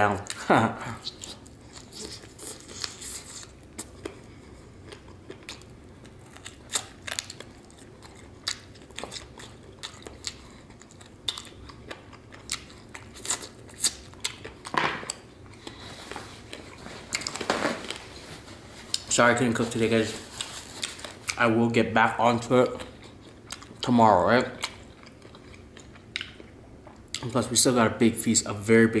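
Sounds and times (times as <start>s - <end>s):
low steady hum: 0.0s - 29.0s
chewing crunchy food: 1.0s - 18.2s, 20.2s - 21.4s, 22.6s - 27.4s
paper napkin rustling: 15.9s - 21.3s.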